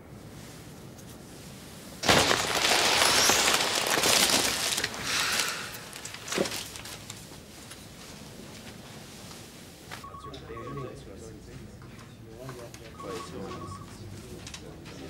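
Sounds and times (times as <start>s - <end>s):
foil balloon crinkling: 2.0s - 7.8s.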